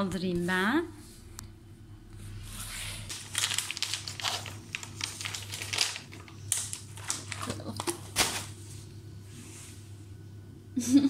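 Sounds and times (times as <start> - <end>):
plastic packaging crinkling: 2.8 - 8.7.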